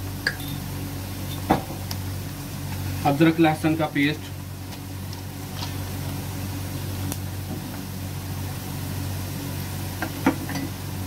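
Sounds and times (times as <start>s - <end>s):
low mechanical hum: 0.0s - 11.0s
onions sizzling in oil: 0.0s - 11.0s.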